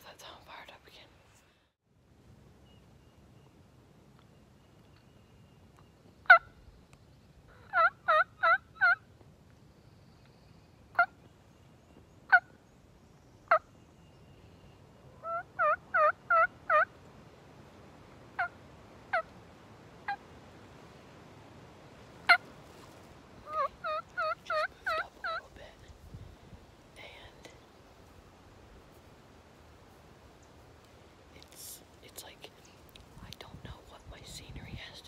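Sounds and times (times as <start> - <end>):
turkey clucks: 7.5 - 9.0, 15.2 - 17.0, 18.4 - 19.3, 23.4 - 25.5
turkey yelps: 7.5 - 9.0, 15.2 - 16.9, 23.5 - 25.4.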